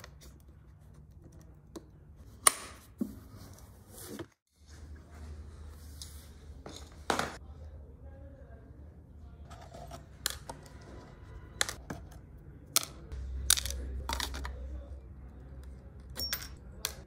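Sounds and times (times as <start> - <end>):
objects clicking and knocking: 11.5 - 14.7.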